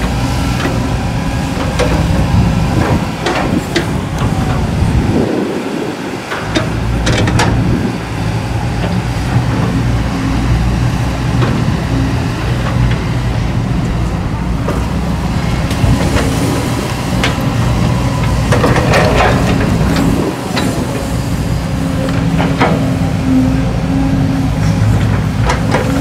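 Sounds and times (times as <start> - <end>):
excavator diesel engine humming: 0.0 - 26.0
excavator bucket metallic clanks: 1.5 - 4.8, 6.3 - 8.0, 18.2 - 23.2.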